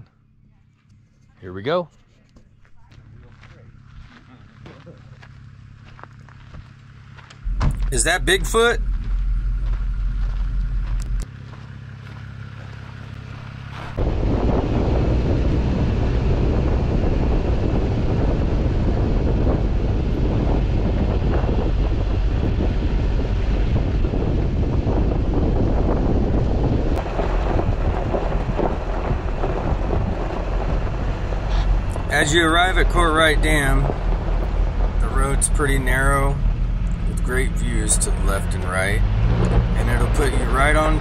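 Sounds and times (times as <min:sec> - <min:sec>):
vehicle driving on dirt road: 0:00.0 - 0:41.0
wind buffeting microphone: 0:13.9 - 0:41.0.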